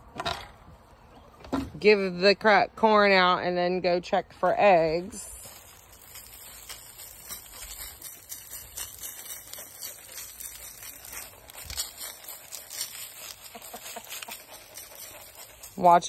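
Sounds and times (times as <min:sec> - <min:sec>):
footsteps on dry straw and leaves: 0:05.0 - 0:16.0.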